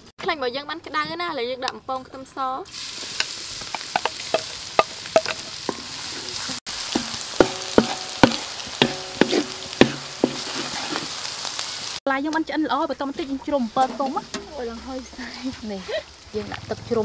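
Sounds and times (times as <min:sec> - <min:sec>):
garlic sizzling in oil: 0:02.6 - 0:12.0, 0:12.8 - 0:17.0
spatula knocking and scraping wok: 0:03.1 - 0:11.2, 0:13.1 - 0:15.0.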